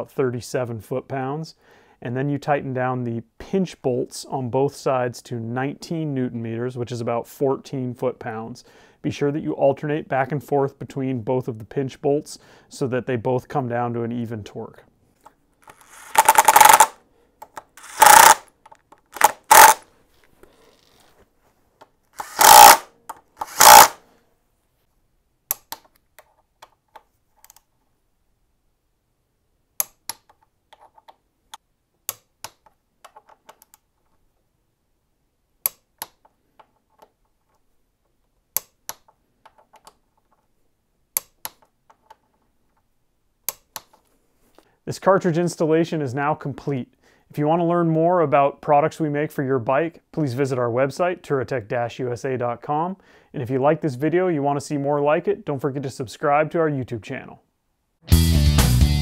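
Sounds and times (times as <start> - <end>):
cordless power tool running bolts: 15.7 - 16.9, 17.8 - 18.4, 19.2 - 19.8, 22.2 - 24.0
torque wrench clicks: 15.7 - 17.0, 17.8 - 18.5, 19.2 - 19.8, 22.2 - 24.0.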